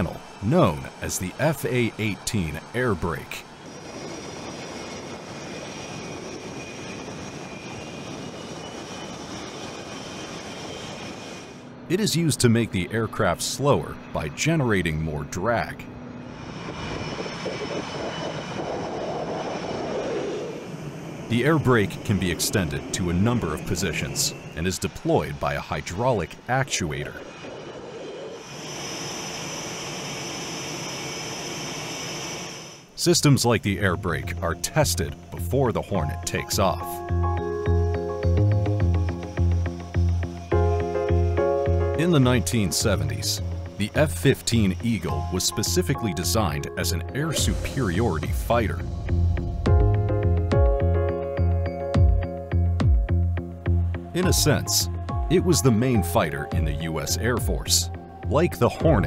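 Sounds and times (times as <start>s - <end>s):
jet engines running with whine: 0.0s - 59.0s.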